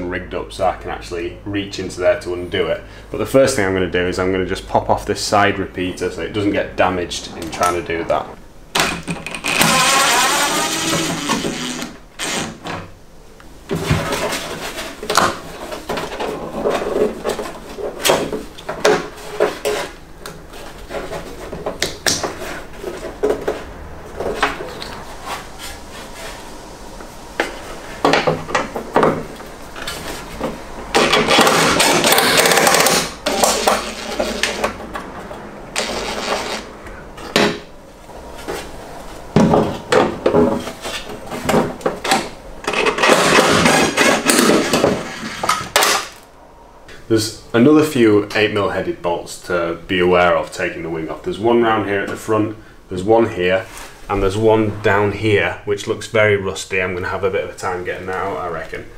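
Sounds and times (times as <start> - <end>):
tool rasping: 9.3 - 12.6, 31.0 - 34.7.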